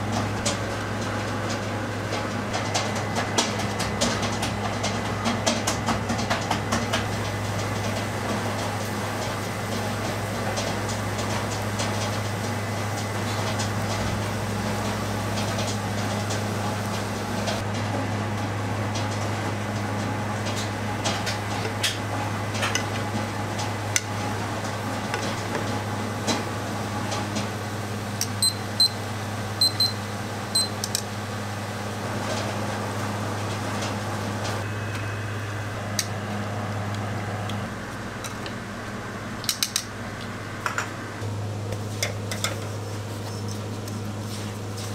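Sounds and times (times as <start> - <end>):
constant low hum: 0.0 - 44.9
short high electronic beeps: 29.6 - 30.0.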